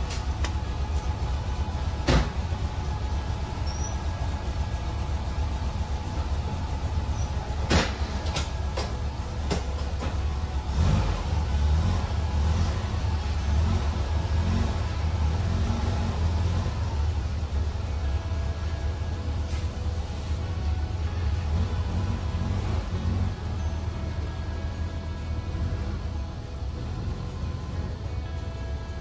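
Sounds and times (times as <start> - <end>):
engine rumbling: 0.0 - 29.0
sharp engine knocks: 1.9 - 2.6, 7.6 - 10.4.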